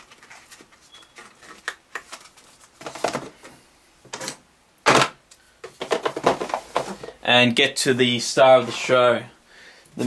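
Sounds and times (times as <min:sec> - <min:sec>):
packaging scrapes taps and rustles: 0:00.0 - 0:03.4.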